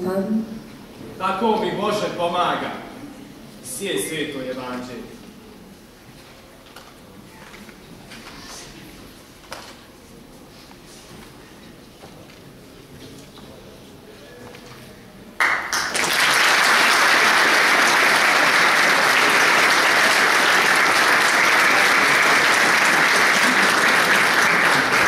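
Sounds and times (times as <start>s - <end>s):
audience applauding: 15.4s - 25.0s.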